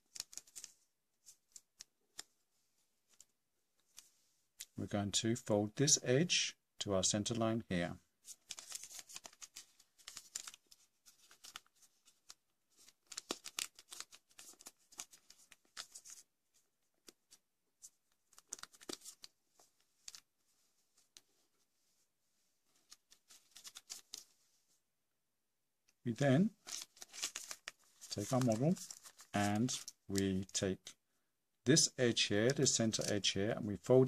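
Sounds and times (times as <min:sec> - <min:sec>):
paper rustling and crinkling: 0:00.0 - 0:02.4, 0:08.2 - 0:22.0, 0:22.7 - 0:24.6, 0:26.2 - 0:30.5.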